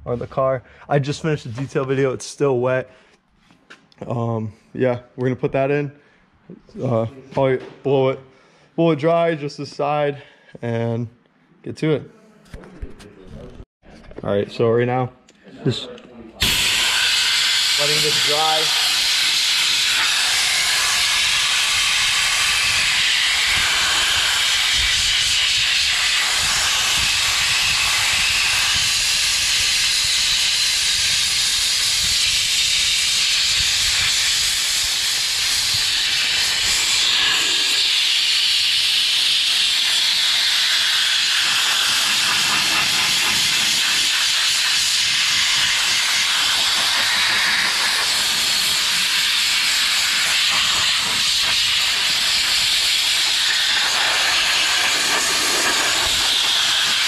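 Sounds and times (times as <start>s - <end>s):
compressed air blow gun hissing: 16.4s - 57.0s.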